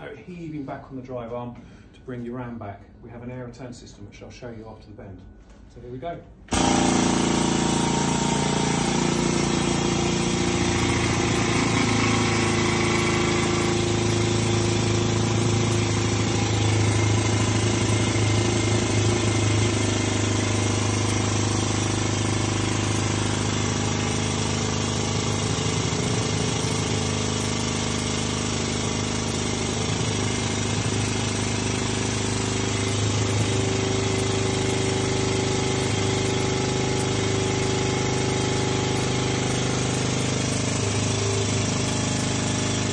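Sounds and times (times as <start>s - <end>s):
hydraulic pump running: 6.5s - 42.9s.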